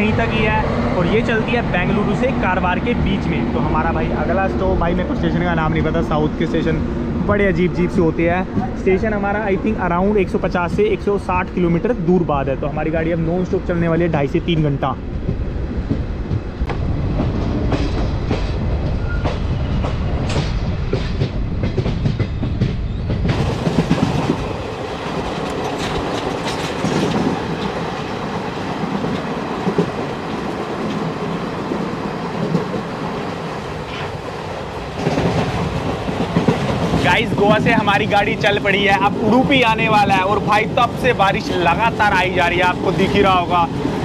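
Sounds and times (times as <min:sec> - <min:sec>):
deep train rumble: 0:00.0 - 0:44.0
train wheels clattering on rails: 0:15.1 - 0:44.0.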